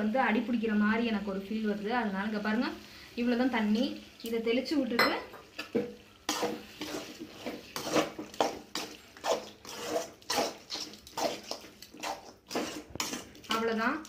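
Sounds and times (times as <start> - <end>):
ladle scraping a steel pan: 6.3 - 13.6.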